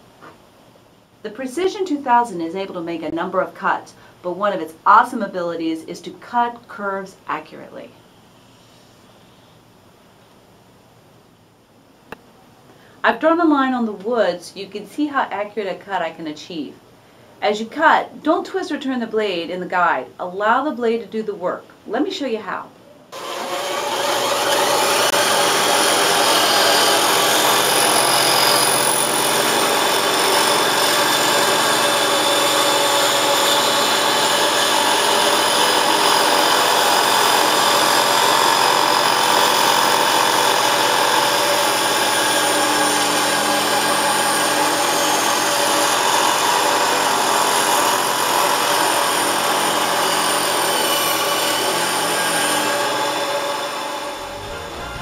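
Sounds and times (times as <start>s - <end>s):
band saw cutting wood: 23.2s - 55.0s.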